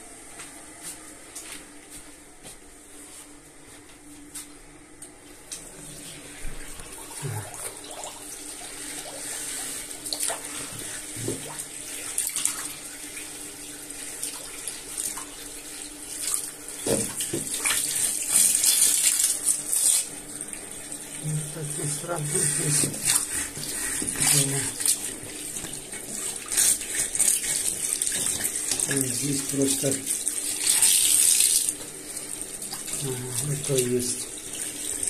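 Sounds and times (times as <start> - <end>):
tap water running into basin: 5.5 - 35.0
brush scrubbing in plughole: 21.2 - 30.1.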